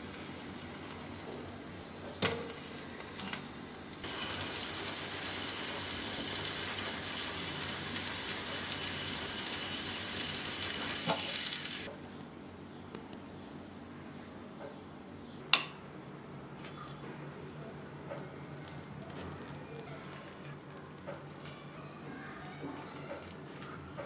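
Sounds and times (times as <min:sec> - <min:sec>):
mango skin hissing over flame: 0:02.7 - 0:11.9.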